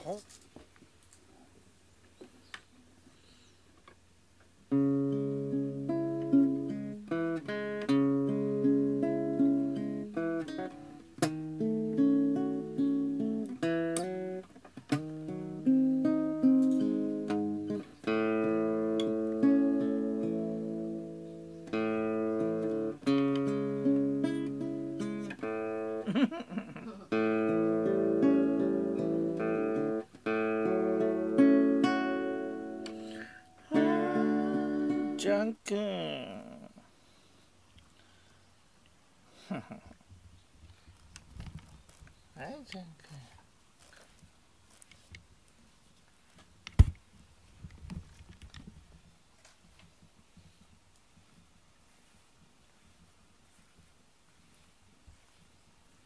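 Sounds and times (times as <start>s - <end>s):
acoustic guitar plucking: 4.7s - 36.7s.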